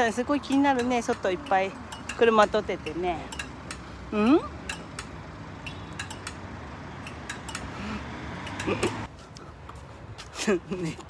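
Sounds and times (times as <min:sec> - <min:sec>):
low traffic rumble: 0:00.0 - 0:11.0
light clicks and clinks: 0:00.4 - 0:03.9.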